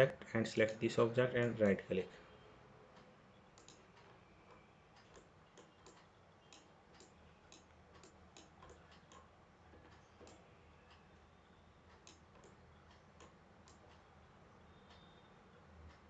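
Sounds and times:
computer mouse clicks: 0:03.0 - 0:11.0, 0:11.9 - 0:14.1.

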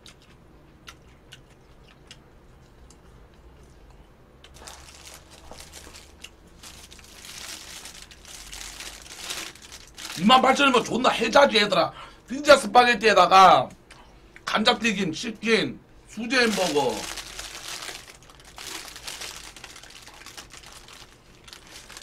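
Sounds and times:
paper wrapping crinkling: 0:04.5 - 0:10.8, 0:16.3 - 0:22.0.

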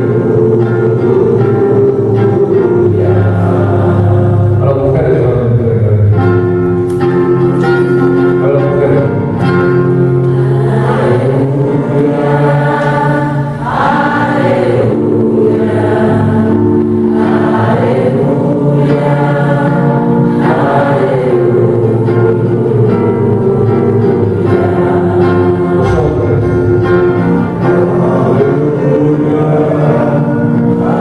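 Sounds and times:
instrumental accompaniment: 0:00.0 - 0:31.0
voices singing a hymn: 0:00.0 - 0:31.0.

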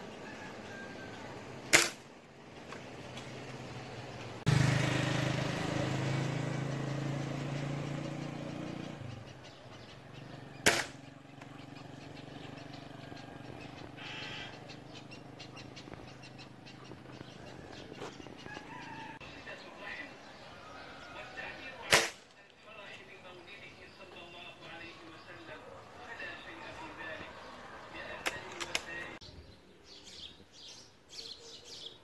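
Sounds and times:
air rifle shot: 0:01.7 - 0:02.0, 0:10.6 - 0:11.0, 0:21.9 - 0:22.2.

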